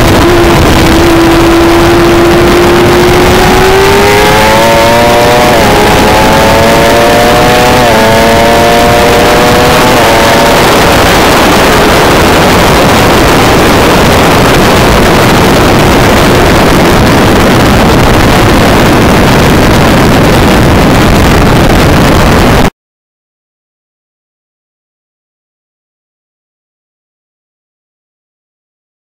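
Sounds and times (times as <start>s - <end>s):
motorcycle engine revving: 0.0s - 22.4s
wind rush on microphone: 0.0s - 22.7s.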